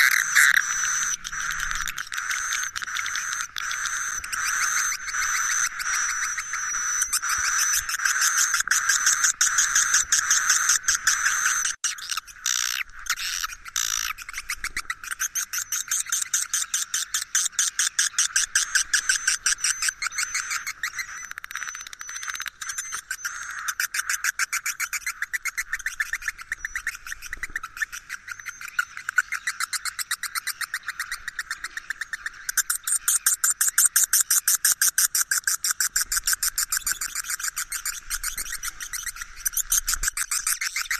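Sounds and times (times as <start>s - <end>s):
swiftlet calls chattering: 0.0s - 40.9s.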